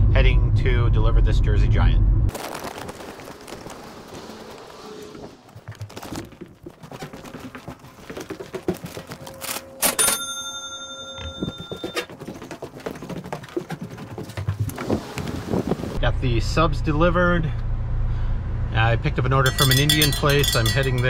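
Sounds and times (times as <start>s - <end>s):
footsteps on stairs: 5.6s - 9.6s, 11.0s - 15.3s
cash register ka-ching: 9.4s - 12.1s.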